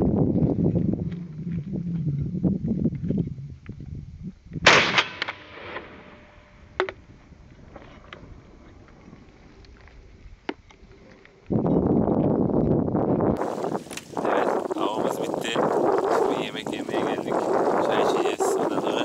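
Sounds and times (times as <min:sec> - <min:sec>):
shotgun shot echoing: 0:04.7 - 0:06.4.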